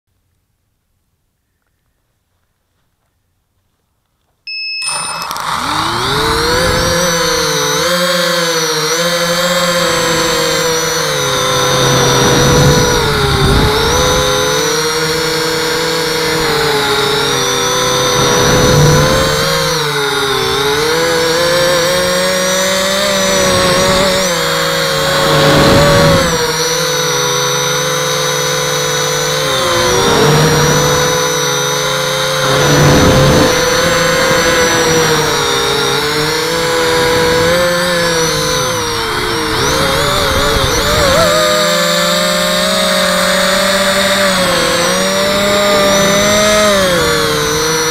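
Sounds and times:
drone motors whining: 4.5 - 47.9.

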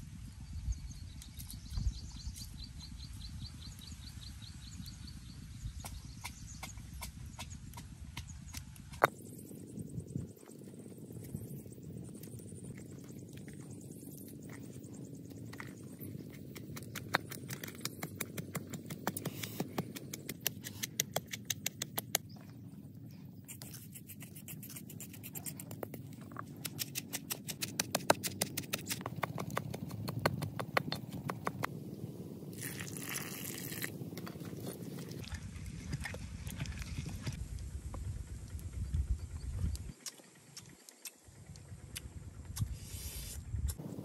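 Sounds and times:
water pouring and splashing: 32.5 - 37.4.

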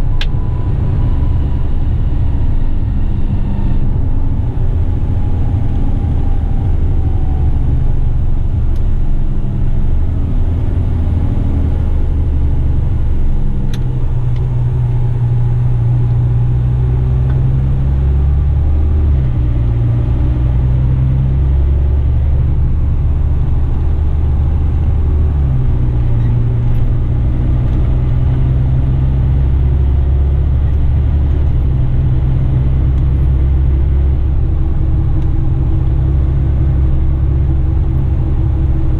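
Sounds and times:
truck diesel engine droning: 0.0 - 38.9.

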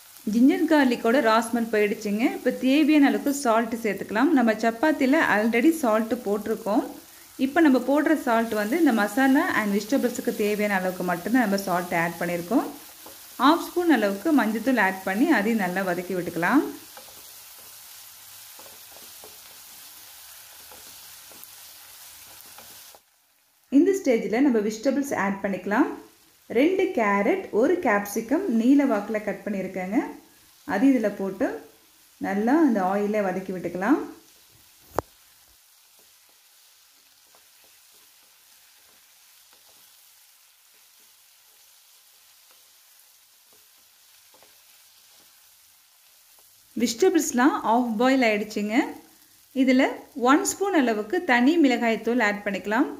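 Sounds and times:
vegetables sizzling in oil: 0.0 - 52.9
spatula tapping pan: 12.3 - 13.4, 15.5 - 23.0, 37.2 - 39.9, 43.5 - 45.4.

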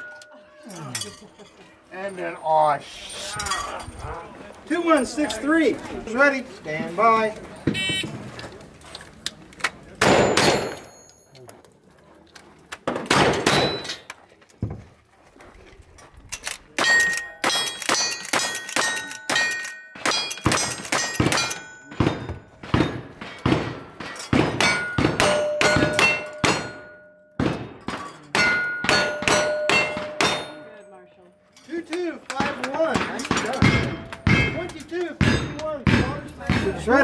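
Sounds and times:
gunshots: 10.0 - 10.9, 12.9 - 13.9, 16.8 - 26.8, 27.4 - 28.0
bullet striking steel target: 10.0 - 11.2, 13.0 - 14.0, 16.8 - 30.8, 32.4 - 36.8.

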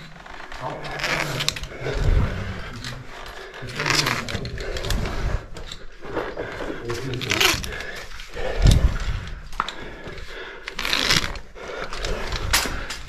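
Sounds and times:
gear scraping against rock: 0.0 - 5.8, 6.8 - 7.9
hard breaths: 0.0 - 13.0.

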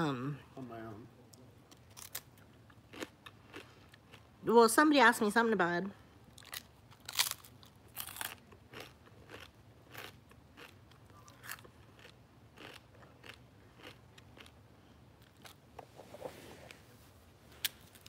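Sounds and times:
crunching rice cake bites: 1.7 - 4.2, 6.4 - 14.6
chewing crunches: 1.7 - 4.3, 6.3 - 14.6.

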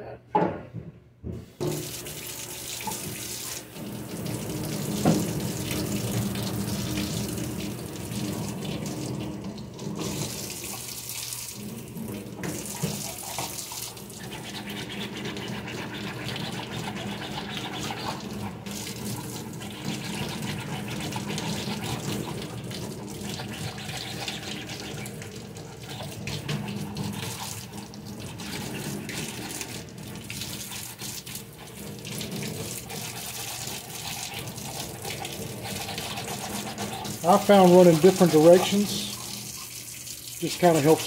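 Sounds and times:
tap running into a sink: 1.2 - 11.0, 11.8 - 17.2.

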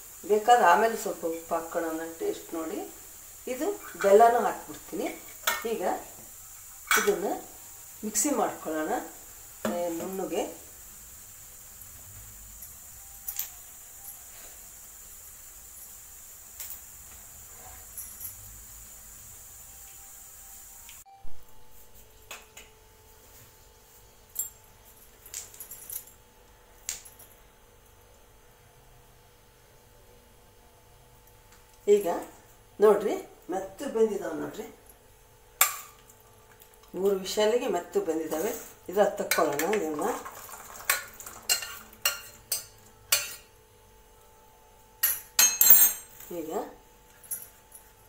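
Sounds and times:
faint steady hiss: 0.0 - 48.0
steel kitchenware clinking: 6.9 - 7.2, 39.2 - 43.5, 45.0 - 46.2.

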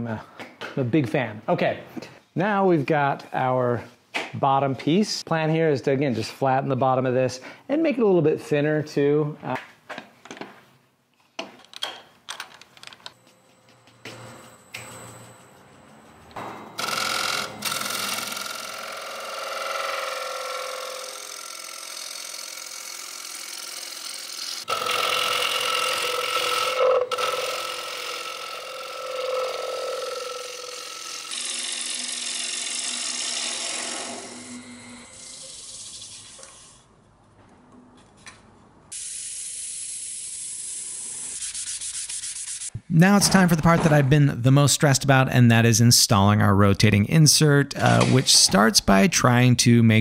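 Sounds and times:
wood lathe humming: 16.8 - 36.7
sandpaper rubbing spinning wood: 40.1 - 42.8.

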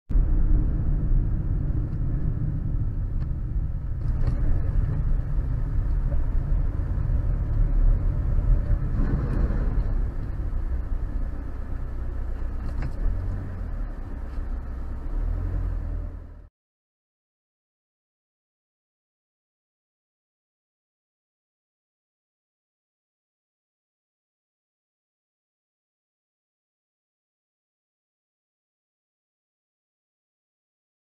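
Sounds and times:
car driving at highway speed: 0.1 - 16.5.

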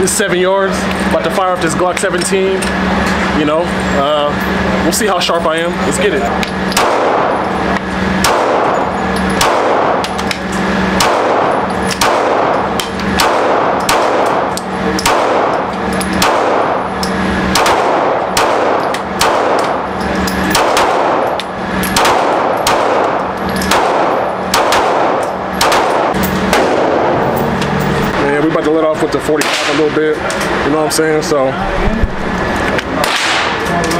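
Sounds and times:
pistol shots indoors: 6.6 - 7.4, 8.0 - 27.3, 29.4 - 29.9, 33.0 - 33.7
gunshots from neighbouring lane: 6.8 - 7.4, 8.2 - 8.8, 9.4 - 10.0, 10.9 - 16.9, 17.5 - 19.8, 20.5 - 21.3, 22.0 - 27.2, 29.3 - 29.9, 33.0 - 33.6.

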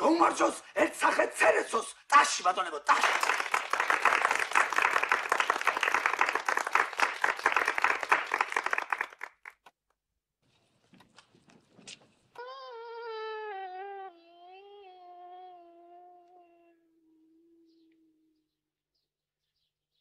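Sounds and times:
people applauding: 2.9 - 9.7.

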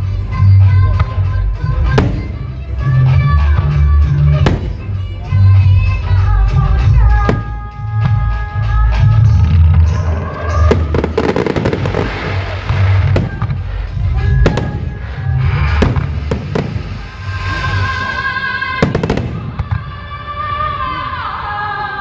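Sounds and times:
firework bangs and crackles: 0.9 - 5.6, 8.9 - 20.1.

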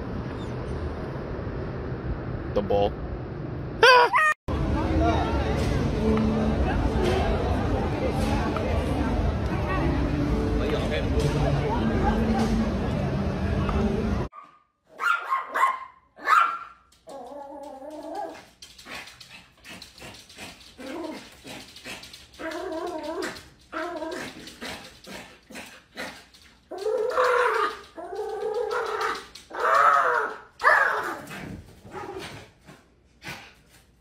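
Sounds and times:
small dog barking and crying: 14.4 - 18.4, 26.7 - 31.2.

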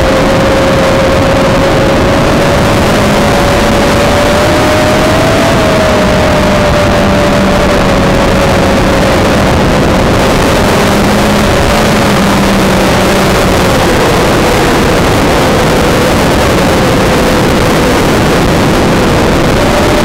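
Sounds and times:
drone propellers whining: 0.0 - 20.0
rushing air: 0.0 - 20.0.

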